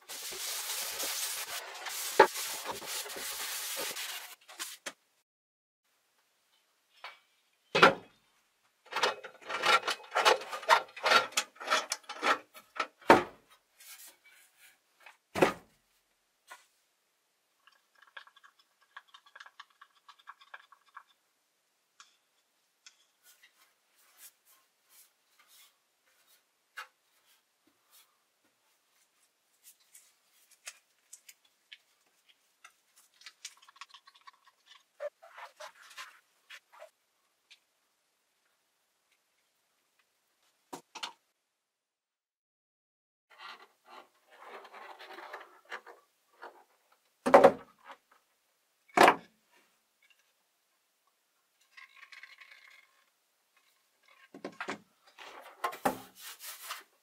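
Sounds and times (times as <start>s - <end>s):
rubbing on carbon fiber: 0.1s - 4.8s
stick stirring resin in cup: 17.6s - 21.2s, 30.7s - 35.8s.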